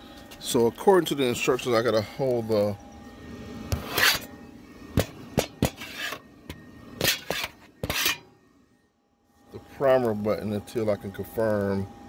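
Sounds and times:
grill fan humming: 0:00.0 - 0:12.0
knocks and scrapes on steel grill: 0:05.0 - 0:08.3.

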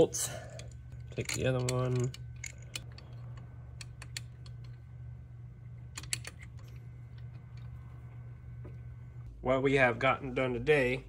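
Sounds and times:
steady low hum: 0:00.0 - 0:11.0
metal parts clicking and tapping: 0:00.1 - 0:04.8, 0:05.9 - 0:07.4.

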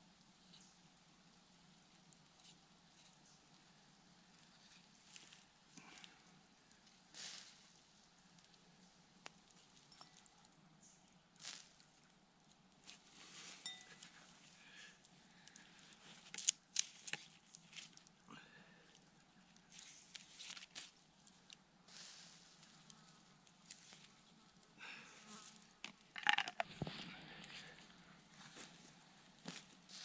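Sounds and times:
knife peeling fibrous skin: 0:16.2 - 0:18.0
grass rustling: 0:21.9 - 0:30.0.

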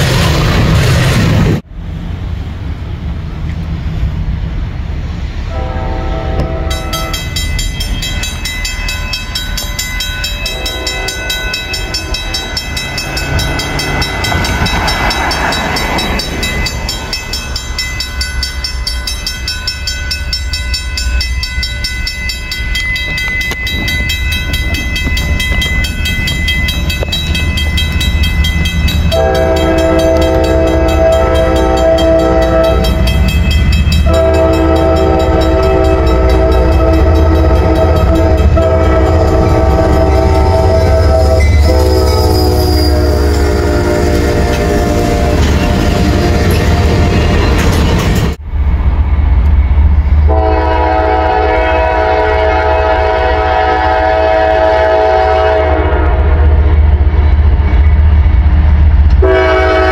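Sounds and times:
train rumbling: 0:00.0 - 0:59.9
train horn blasts: 0:05.4 - 0:07.4, 0:10.4 - 0:14.6, 0:29.1 - 0:47.1, 0:50.3 - 0:56.8, 0:59.2 - 0:59.9.

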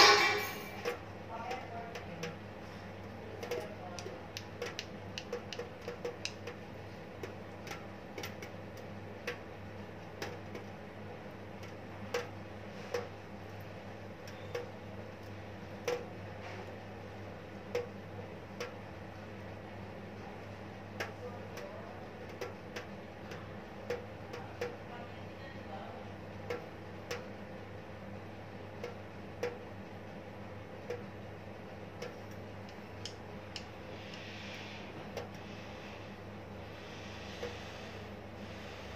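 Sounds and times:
steady low hum: 0:00.0 - 0:38.9
light clicks and taps: 0:03.0 - 0:06.6, 0:21.0 - 0:24.8.

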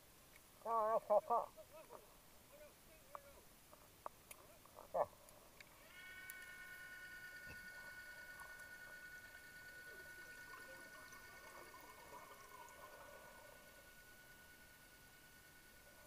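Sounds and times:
electric motor whine underwater: 0:05.6 - 0:16.0.

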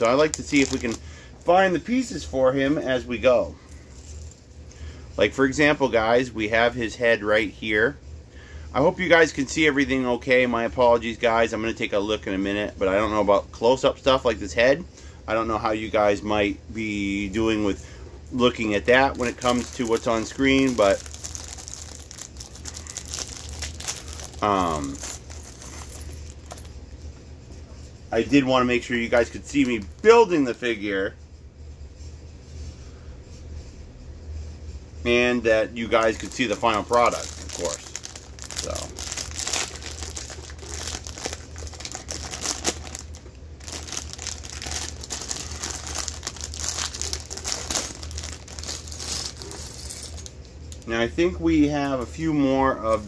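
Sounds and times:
plastic bags crinkling: 0:00.0 - 0:01.6, 0:18.4 - 0:26.7, 0:28.3 - 0:30.4, 0:35.8 - 0:51.0.

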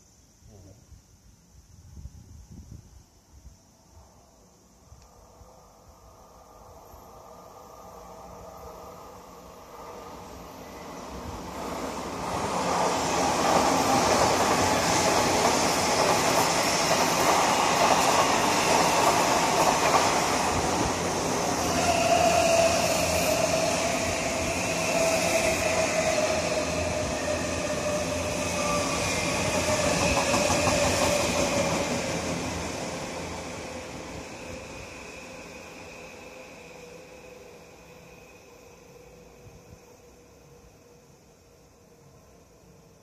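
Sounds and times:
train whine: 0:03.5 - 0:43.0
train wheels rumbling on rails: 0:09.6 - 0:37.6.

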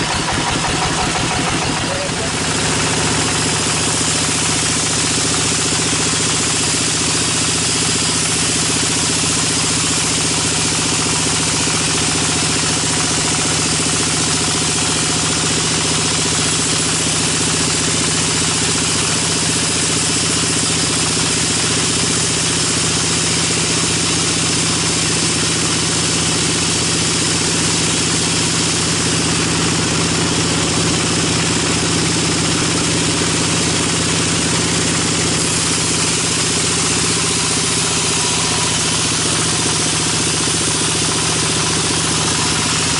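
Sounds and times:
band saw machine hum: 0:00.0 - 0:42.9
saw blade hissing through log: 0:34.4 - 0:42.9.

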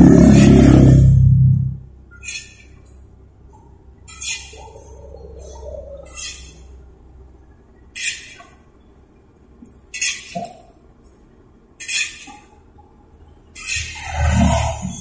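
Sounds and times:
metal spatula scraping a wok: 0:04.1 - 0:04.7, 0:08.0 - 0:08.4, 0:13.6 - 0:15.0.

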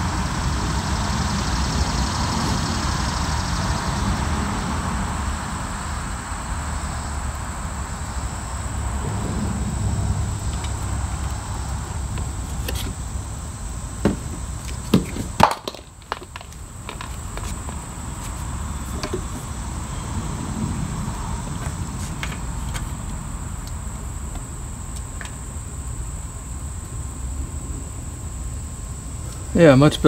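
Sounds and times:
high insect drone: 0:00.0 - 0:30.0.

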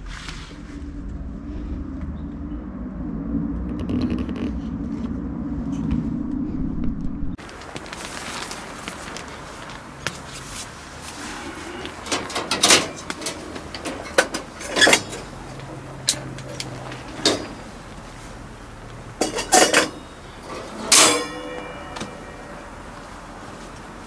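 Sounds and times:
ringing metal clang: 0:19.2 - 0:23.5.

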